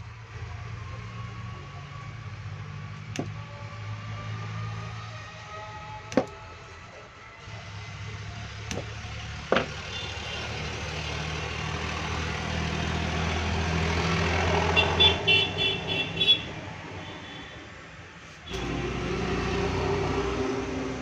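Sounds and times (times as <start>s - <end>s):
motor vehicle running: 7.4s - 17.0s, 18.5s - 21.0s.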